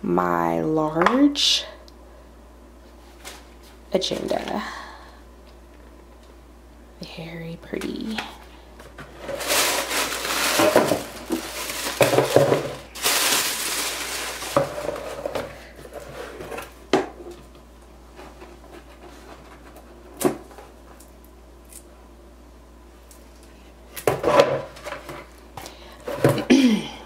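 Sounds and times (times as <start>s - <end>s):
tissue paper rustling: 9.1s - 15.3s.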